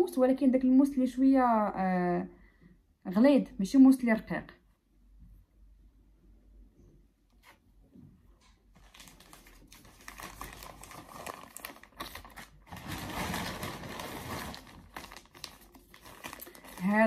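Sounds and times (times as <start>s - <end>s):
plastic bag crinkling: 8.7s - 17.0s.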